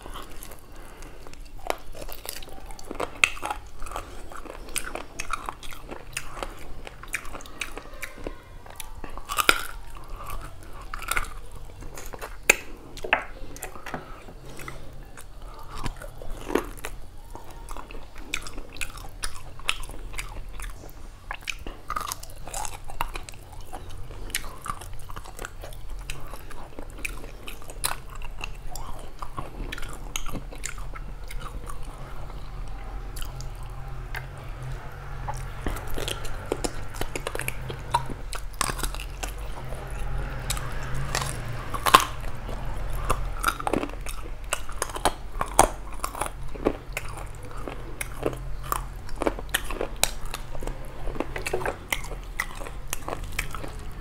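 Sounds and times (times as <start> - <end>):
man chewing with wet mouth smacks: 0.0 - 54.0.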